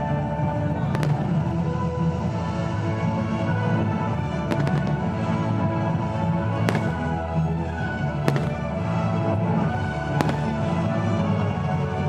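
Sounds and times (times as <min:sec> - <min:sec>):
music: 0:00.0 - 0:12.0
firework shells bursting: 0:04.4 - 0:05.2, 0:06.6 - 0:07.2, 0:08.2 - 0:08.9, 0:10.1 - 0:10.9.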